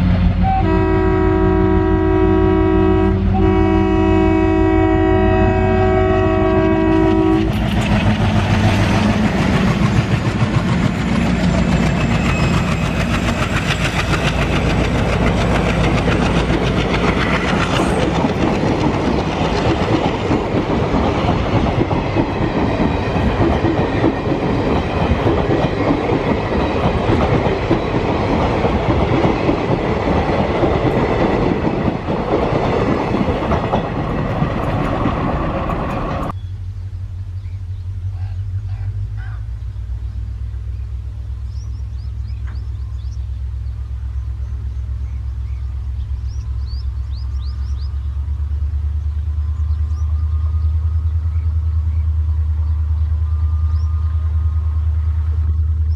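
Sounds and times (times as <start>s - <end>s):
diesel locomotive horn: 0.0s - 7.9s
diesel engines accelerating: 6.2s - 55.9s
coaches rumbling and clacking: 6.8s - 36.4s.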